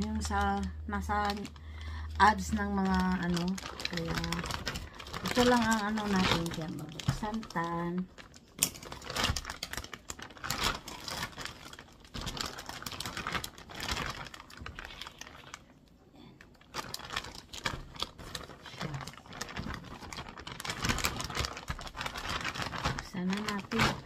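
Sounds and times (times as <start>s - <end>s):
plastic bag rustling and crinkling: 0.0s - 15.8s, 16.4s - 24.0s.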